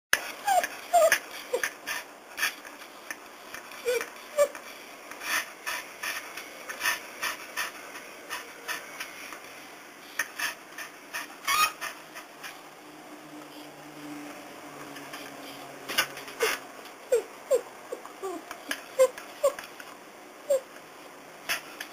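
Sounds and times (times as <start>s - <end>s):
dog whining: 0.3s - 1.7s, 3.8s - 4.6s, 16.4s - 19.6s, 20.5s - 20.7s.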